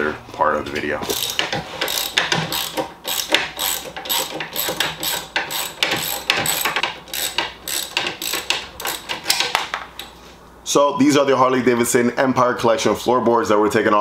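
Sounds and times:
ratchet wrench clicking: 1.1s - 9.6s.

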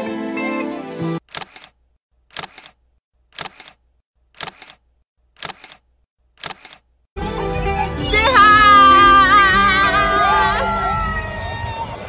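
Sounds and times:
camera shutter double clicks: 1.2s - 2.8s, 3.4s - 3.8s, 4.4s - 4.8s, 5.4s - 5.8s, 6.4s - 6.9s
background music: 7.2s - 12.0s.

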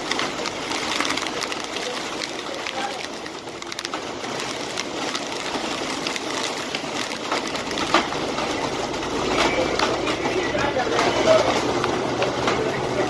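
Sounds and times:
heavy wind-driven rain: 0.0s - 13.0s.

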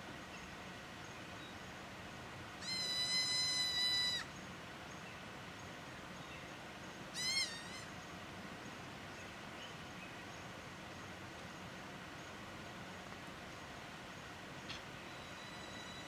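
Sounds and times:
young ibex bleating: 2.6s - 4.3s, 7.2s - 7.9s.

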